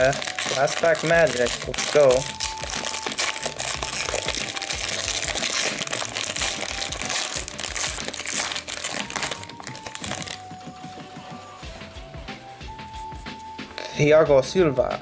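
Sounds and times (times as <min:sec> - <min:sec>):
plastic wrapper crinkling and tearing: 0:00.0 - 0:10.4.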